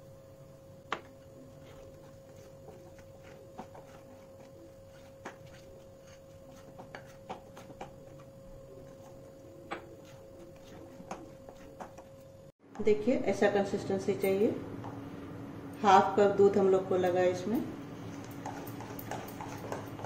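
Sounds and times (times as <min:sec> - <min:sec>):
faint hum: 0:00.0 - 0:20.0
spoon stirring thick batter: 0:01.0 - 0:12.3, 0:17.9 - 0:20.0.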